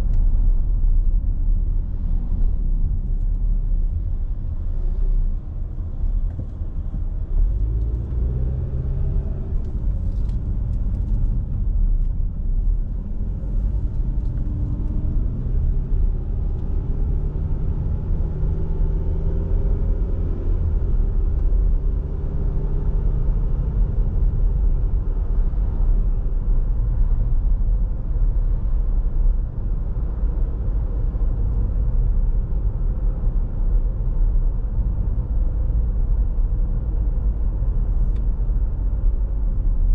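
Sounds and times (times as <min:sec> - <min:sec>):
car engine: 0:00.0 - 0:39.9
road rumble: 0:00.0 - 0:39.9.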